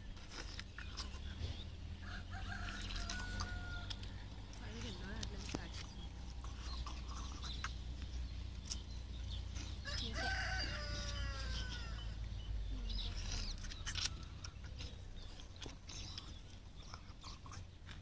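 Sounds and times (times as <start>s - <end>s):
rooster crowing: 2.0s - 4.1s, 9.8s - 12.2s.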